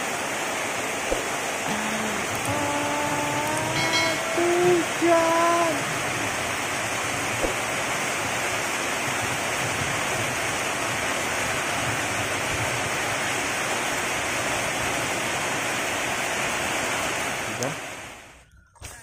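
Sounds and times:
rain on a metal roof: 0:00.0 - 0:19.0
rain on wet ground: 0:00.0 - 0:19.0.

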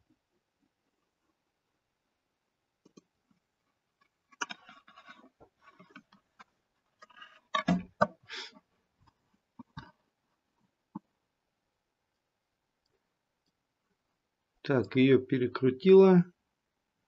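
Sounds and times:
computer mouse clicks: 0:02.8 - 0:03.1.

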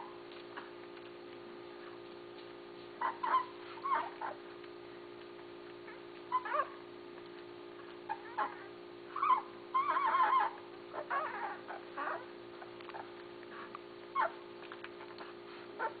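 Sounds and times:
puppies whimpering and squeaking: 0:03.0 - 0:04.5, 0:05.8 - 0:06.8, 0:08.0 - 0:16.0.

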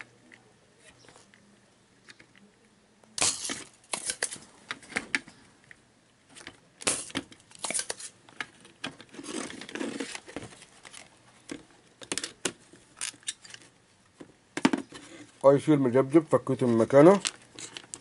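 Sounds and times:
circuit board rustling and scraping: 0:03.3 - 0:05.6, 0:06.2 - 0:15.5, 0:16.6 - 0:18.0.

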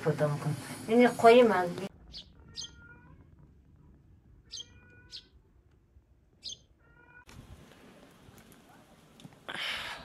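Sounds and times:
sparrows chirping: 0:01.3 - 0:03.2, 0:04.4 - 0:05.4, 0:06.3 - 0:07.1.

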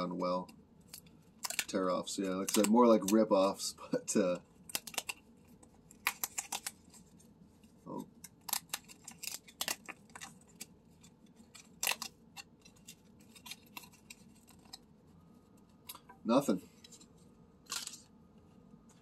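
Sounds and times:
paper tabs tearing: 0:02.4 - 0:03.3, 0:04.6 - 0:05.2, 0:05.9 - 0:07.0, 0:08.2 - 0:10.7, 0:11.5 - 0:14.8.

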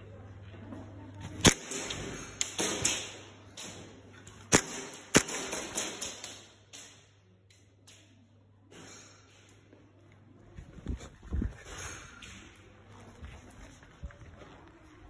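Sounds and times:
airsoft gun cracks: 0:01.4 - 0:03.8, 0:04.5 - 0:08.1.

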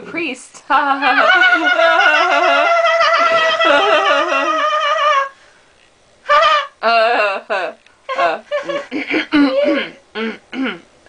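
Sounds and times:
person singing wordless tune: 0:00.8 - 0:05.4, 0:06.3 - 0:10.0.

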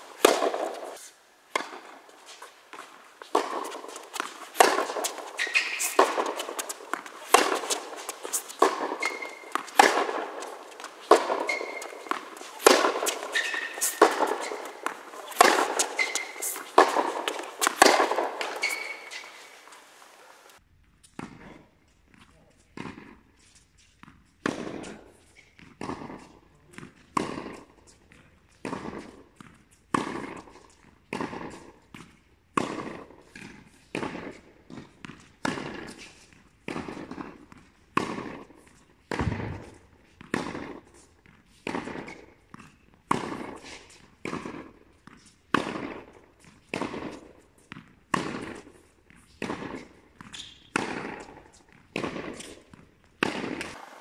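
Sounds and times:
tennis ball bouncing: 0:00.0 - 0:20.1, 0:22.8 - 0:23.2, 0:24.0 - 0:27.8, 0:28.5 - 0:54.0
tennis ball racket pops: 0:02.8 - 0:19.8.

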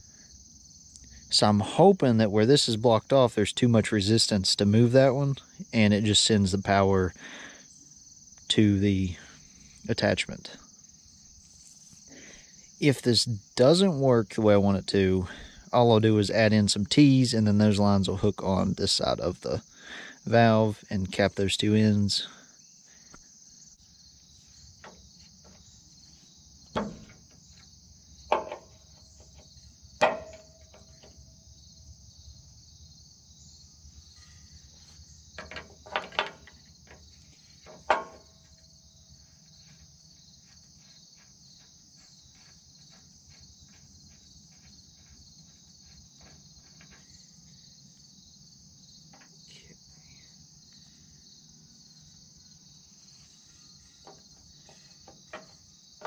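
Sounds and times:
insects chirring: 0:00.0 - 0:56.0
wrench clanking on metal: 0:30.0 - 0:31.2, 0:35.4 - 0:36.6, 0:37.6 - 0:38.3.

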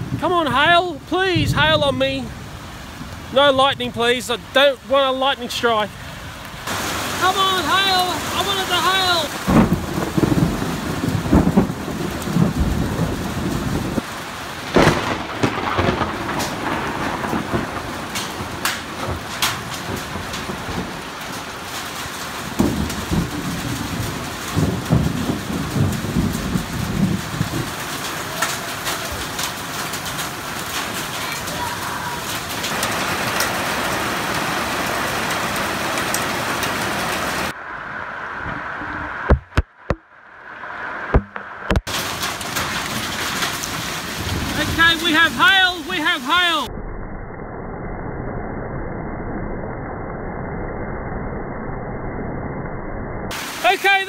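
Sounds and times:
rain and wind hiss: 0:00.0 - 0:46.7, 0:53.3 - 0:54.0
sharp taps: 0:39.3 - 0:40.0, 0:41.1 - 0:41.9
sharp knocks: 0:39.3 - 0:40.1, 0:41.1 - 0:41.9.

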